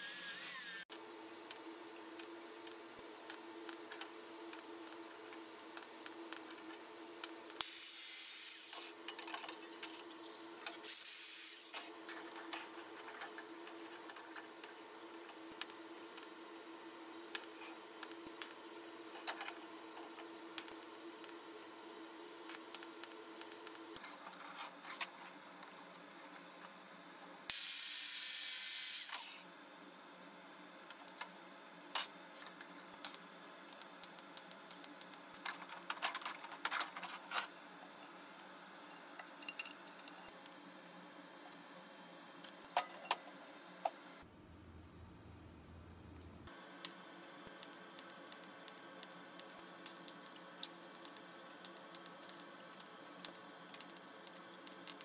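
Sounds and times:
loud even hiss: 0:27.5 - 0:29.4.

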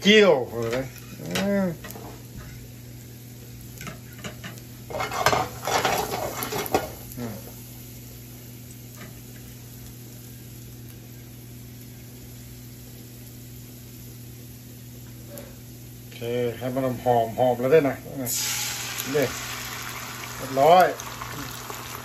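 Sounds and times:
garlic sizzling in oil: 0:00.0 - 0:22.0.

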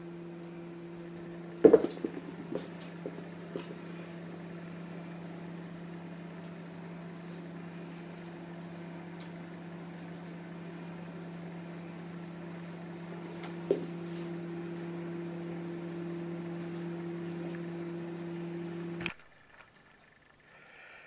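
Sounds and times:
low mechanical hum: 0:00.0 - 0:21.0.

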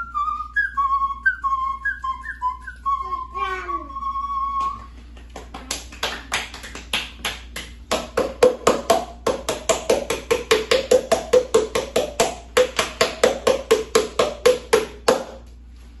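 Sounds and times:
clap-whistling tune: 0:00.0 - 0:07.7.

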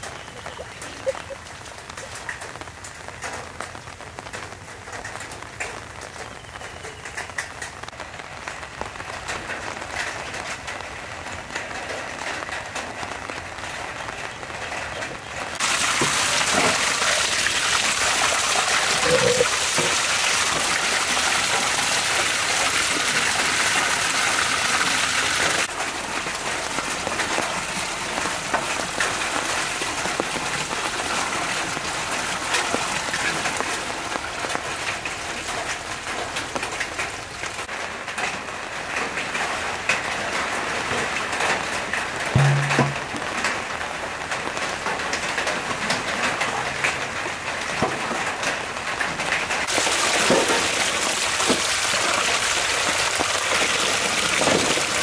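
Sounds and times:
light water patter: 0:00.0 - 0:55.0
tap water pouring into metal basin: 0:15.6 - 0:33.5, 0:42.4 - 0:43.2, 0:49.7 - 0:55.0.

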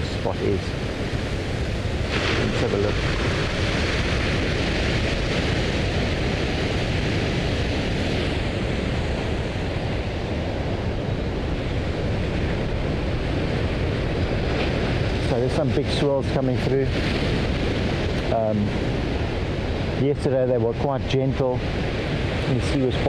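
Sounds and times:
wind buffeting microphone: 0:00.0 - 0:23.0
waves breaking on rocks: 0:00.4 - 0:23.0.

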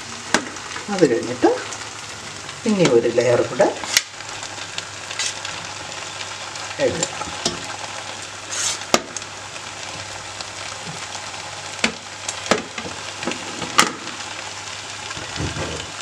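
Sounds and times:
low sizzle: 0:00.0 - 0:16.0.

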